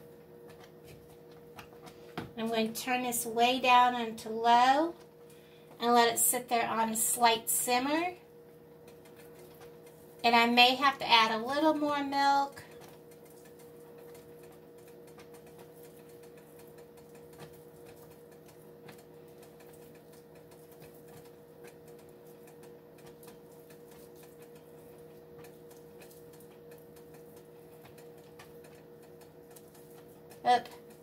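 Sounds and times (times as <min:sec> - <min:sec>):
faint steady hum: 0:00.0 - 0:31.0
gravy simmering in a skillet: 0:06.9 - 0:31.0.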